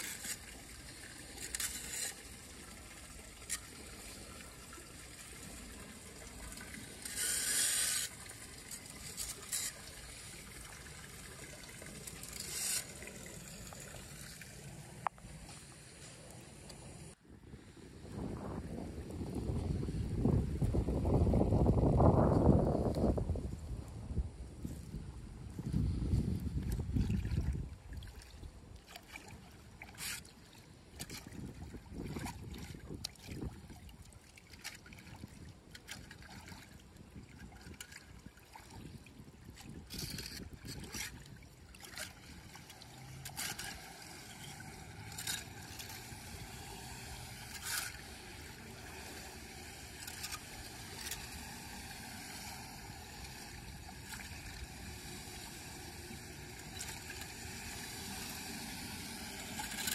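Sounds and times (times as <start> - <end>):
hand rake scraping: 0.0 - 0.5, 1.2 - 2.5, 6.9 - 10.4, 12.0 - 14.0, 42.0 - 59.9
water trickling into drain: 0.0 - 16.0, 26.4 - 59.9.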